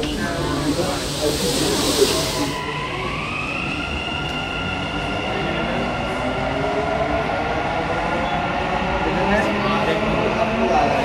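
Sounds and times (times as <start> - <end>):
electric train drive whine: 0.0 - 6.3
low train rumble: 0.0 - 11.0
brief hiss: 0.1 - 2.6.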